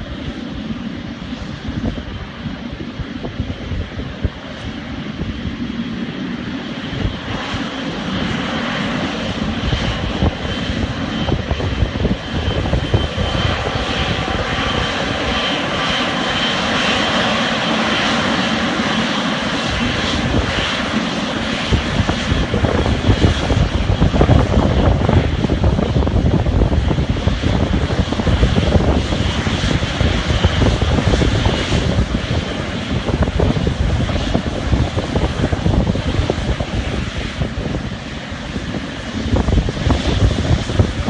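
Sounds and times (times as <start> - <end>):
jet engines whining: 0.0 - 41.0.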